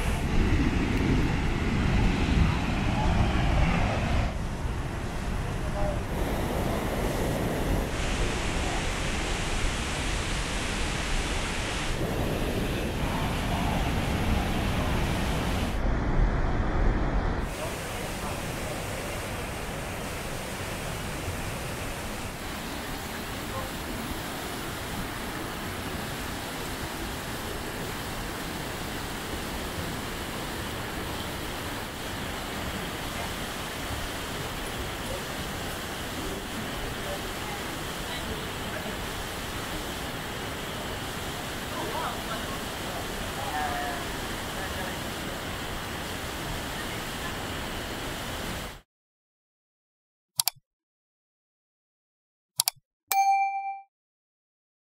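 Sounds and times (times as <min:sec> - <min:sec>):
river rushing through rapids: 0:05.2 - 0:15.9, 0:17.5 - 0:48.8
roar of falling water: 0:05.5 - 0:48.8
mouse click sound effect: 0:50.4 - 0:50.6, 0:52.6 - 0:53.8.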